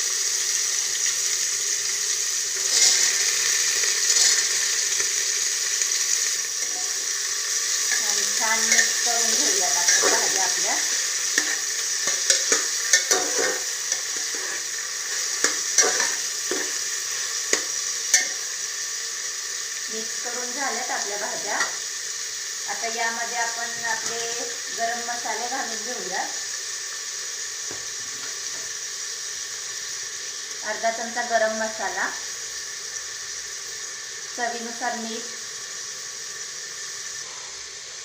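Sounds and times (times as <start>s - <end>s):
vegetables sizzling in oil: 0.0s - 38.0s
spoon scraping metal pot: 8.6s - 16.8s.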